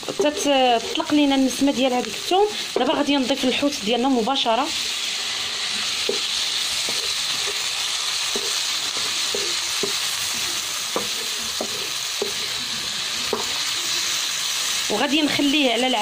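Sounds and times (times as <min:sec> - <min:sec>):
wooden spatula scraping a pan: 0:00.0 - 0:01.2
seafood sizzling in a frying pan: 0:00.0 - 0:16.0.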